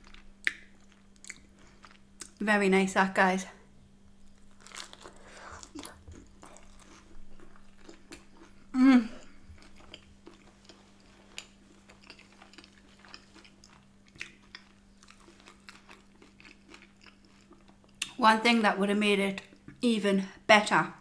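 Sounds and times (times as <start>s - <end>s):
person chewing food: 0.0s - 2.4s, 4.2s - 18.1s
faint steady hum: 0.0s - 21.0s
person humming mmm: 8.7s - 9.4s.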